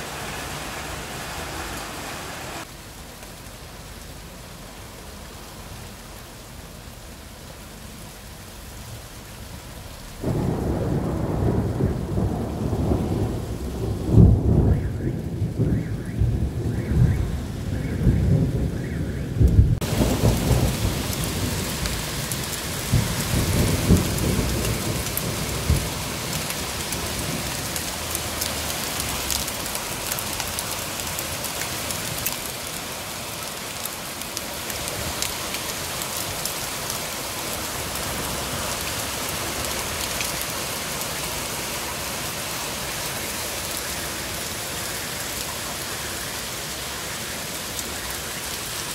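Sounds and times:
heavy rain: 0.0s - 48.9s
thunder rumbling: 10.0s - 30.4s
hailstones ticking: 19.4s - 38.1s.

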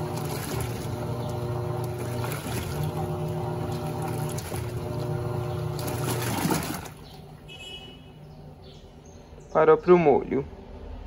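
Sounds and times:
water and clothes sloshing: 0.0s - 7.6s
washing machine motor hum: 0.0s - 9.2s.

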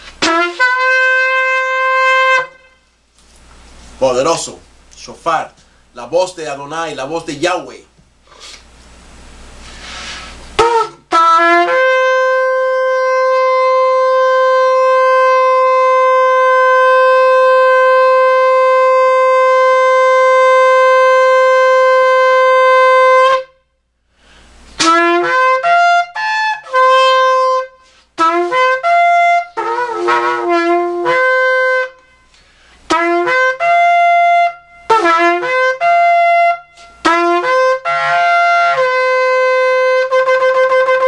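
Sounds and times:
shofar blast: 0.0s - 2.8s, 10.5s - 23.7s, 24.8s - 41.0s
shofar short notes: 0.0s - 2.9s, 10.6s - 23.7s, 24.8s - 41.0s.

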